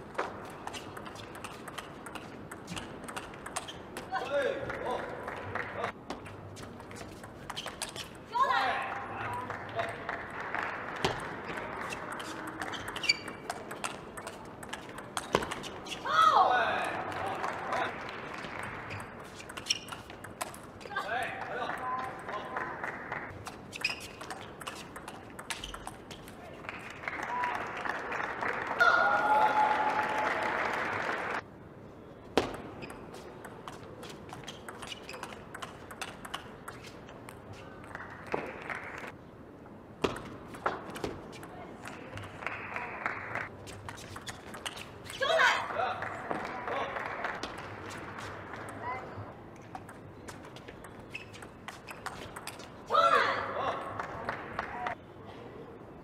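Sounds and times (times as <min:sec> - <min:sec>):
table tennis ball clicking: 0:00.9 - 0:03.8, 0:34.4 - 0:36.8
crowd applause: 0:26.7 - 0:31.4
brief high squeak: 0:51.1 - 0:52.2.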